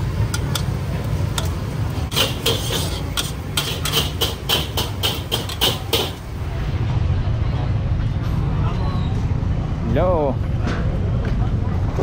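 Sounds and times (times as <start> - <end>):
low steady rumble: 6.2 - 12.0.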